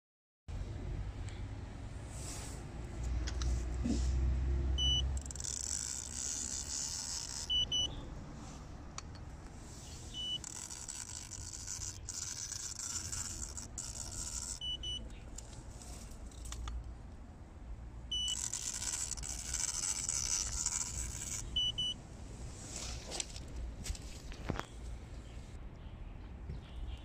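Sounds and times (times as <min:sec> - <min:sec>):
high beep: 0:04.8 - 0:05.1, 0:07.5 - 0:08.0, 0:18.1 - 0:18.4
quick double beep: 0:04.8 - 0:05.1, 0:07.4 - 0:08.0, 0:10.1 - 0:10.5, 0:18.1 - 0:18.4
inkjet printer hissing: 0:04.8 - 0:07.9, 0:09.8 - 0:16.1, 0:18.1 - 0:21.9.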